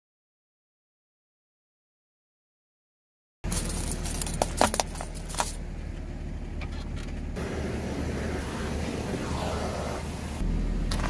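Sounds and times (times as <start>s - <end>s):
car engine idling: 3.4s - 11.0s
sharp clicks and clinks: 3.5s - 5.6s.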